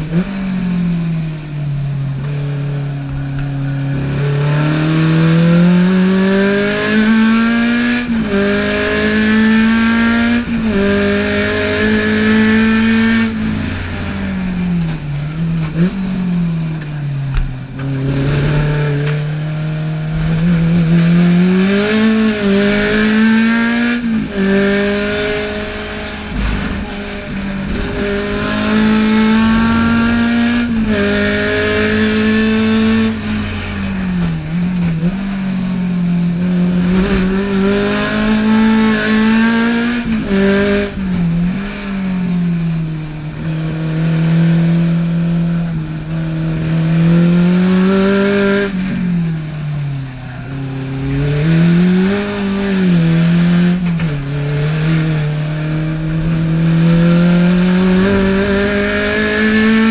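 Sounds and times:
car engine revving high: 0.0s - 59.9s.

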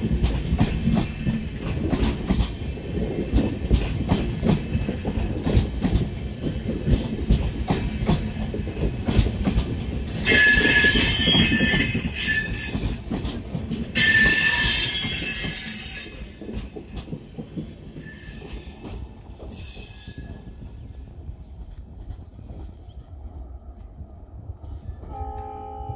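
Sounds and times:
train wheels clattering over rail joints: 0.0s - 20.8s
high-pitched wheel squeal: 10.1s - 12.8s.

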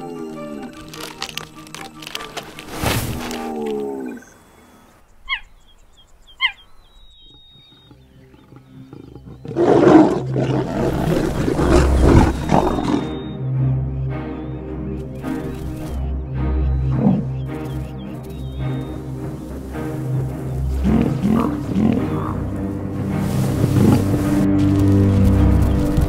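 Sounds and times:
background music with drone: 0.0s - 5.4s, 7.8s - 26.0s
lions growling: 7.2s - 13.3s, 20.2s - 24.5s.

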